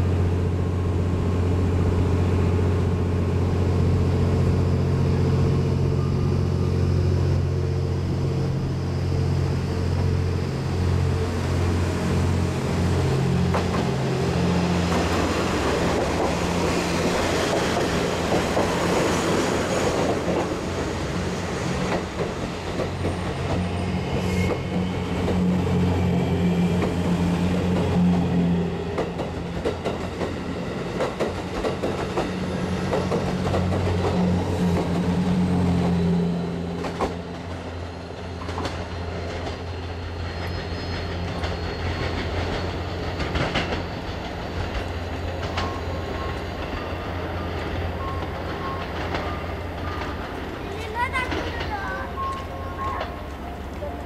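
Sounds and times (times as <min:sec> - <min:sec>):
diesel engine drone: 0:00.0 - 0:18.4
wheel squeal: 0:38.0 - 0:50.2.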